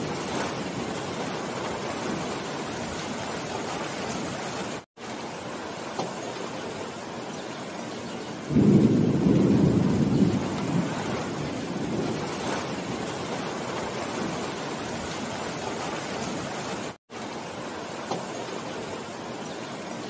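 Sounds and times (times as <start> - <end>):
rain on leaves: 0.0 - 20.0
thunder clap rolling: 8.5 - 16.4.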